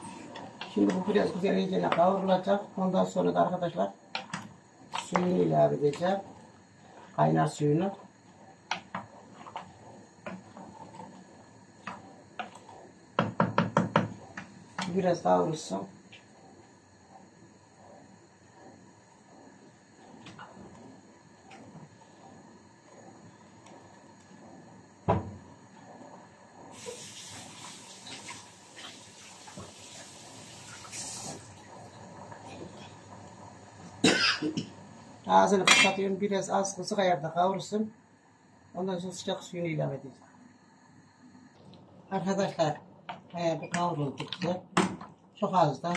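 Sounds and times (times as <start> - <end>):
wooden spoon stirring in metal pot: 5.0 - 14.9
vegetables sizzling in a pot: 26.7 - 32.4.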